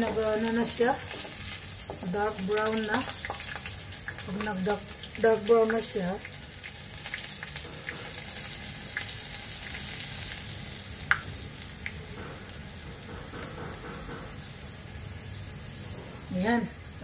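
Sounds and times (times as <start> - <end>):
oil crackles and pop: 0.0 - 13.1
garlic sizzling in hot oil: 0.0 - 17.0.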